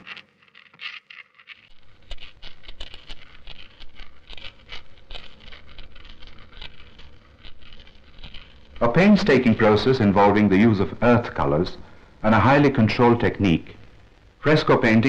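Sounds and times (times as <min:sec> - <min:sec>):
paste scraping on stone slab: 0:00.0 - 0:09.3.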